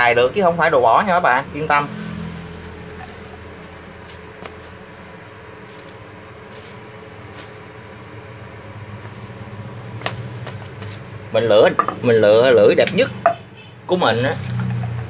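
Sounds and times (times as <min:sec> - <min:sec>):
low background hum: 0:02.4 - 0:13.9.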